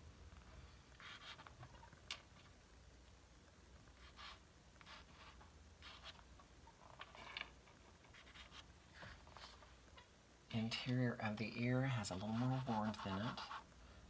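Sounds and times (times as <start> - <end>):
pastel scratching on paper: 1.0 - 1.5, 4.0 - 6.2, 8.1 - 8.7, 12.2 - 13.7.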